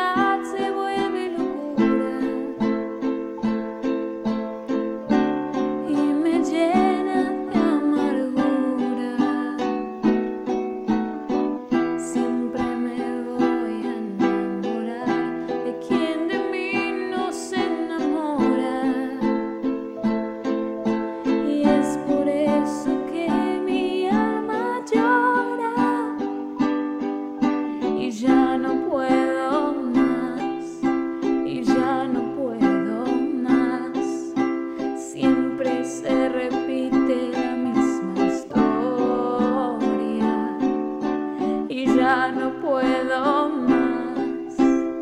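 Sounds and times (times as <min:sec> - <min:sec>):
woman singing slow ballad: 0:00.0 - 0:02.6, 0:05.8 - 0:09.8, 0:12.0 - 0:19.4, 0:21.4 - 0:26.3, 0:28.0 - 0:30.9, 0:31.5 - 0:34.4, 0:35.0 - 0:40.8, 0:41.4 - 0:44.8
strummed string instrument: 0:00.0 - 0:45.0.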